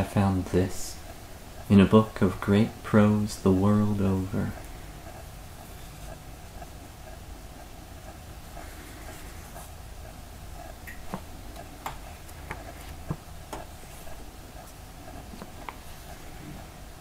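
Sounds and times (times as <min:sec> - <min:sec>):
low room hum: 0:00.0 - 0:17.0
book pages turning: 0:11.0 - 0:16.1.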